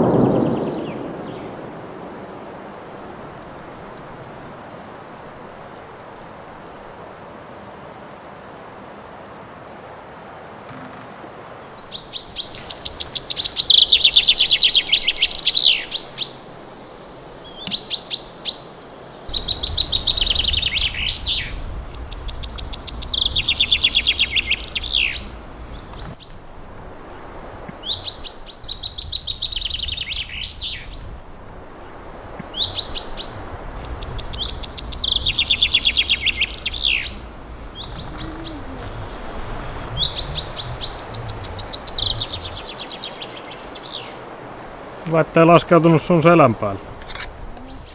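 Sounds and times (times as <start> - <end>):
chaffinch singing: 10.7 - 26.5, 27.1 - 31.2, 31.8 - 47.9
short single bird notes: 32.5 - 44.1.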